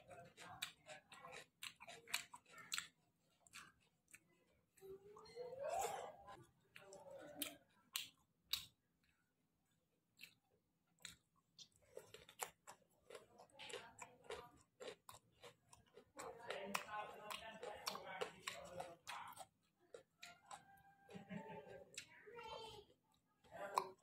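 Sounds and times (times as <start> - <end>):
person chewing food: 0.0 - 22.2, 22.8 - 24.0.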